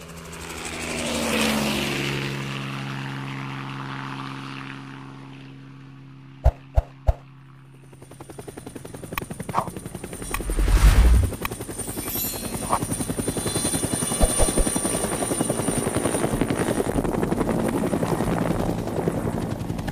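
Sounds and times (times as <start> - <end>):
helicopter rotor blades chopping: 6.4 - 19.9
thin high whine: 10.2 - 13.0
low rumble: 10.3 - 11.4.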